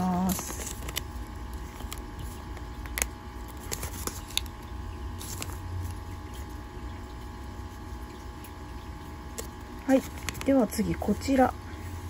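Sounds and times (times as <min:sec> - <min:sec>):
paper rustling and crackling: 0:00.0 - 0:06.6, 0:09.3 - 0:10.6.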